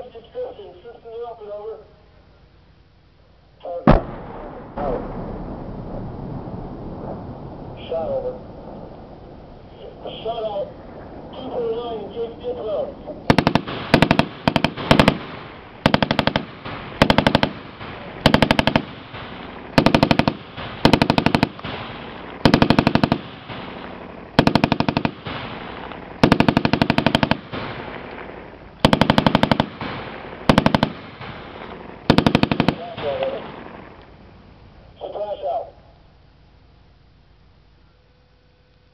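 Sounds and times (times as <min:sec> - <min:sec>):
gunfire echo: 0:03.9 - 0:08.4, 0:13.3 - 0:34.0
machine-gun fire bursts: 0:13.3 - 0:33.8.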